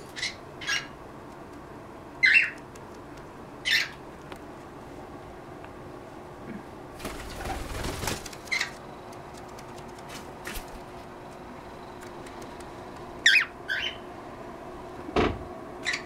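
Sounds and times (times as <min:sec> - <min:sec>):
cockatiels chirping: 0:00.2 - 0:01.0, 0:02.2 - 0:02.6, 0:03.6 - 0:04.0, 0:13.2 - 0:14.0.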